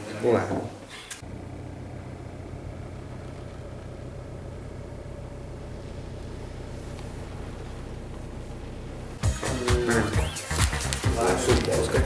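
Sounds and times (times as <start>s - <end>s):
car engine drone from inside cabin: 1.2s - 9.2s.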